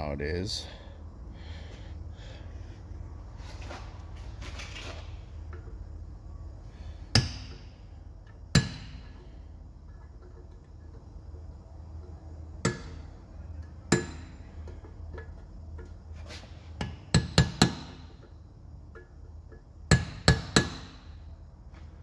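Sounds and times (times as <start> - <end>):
hammer striking steel punch: 7.1 - 7.7, 8.5 - 9.1, 12.6 - 13.0, 13.9 - 14.4, 19.9 - 21.1.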